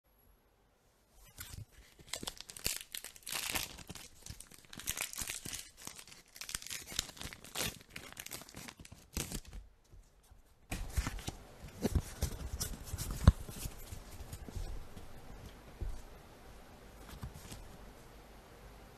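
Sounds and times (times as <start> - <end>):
foil wrapper crinkling and tearing: 1.3 - 9.6
cards sliding and tapping: 10.7 - 16.2, 17.0 - 17.9.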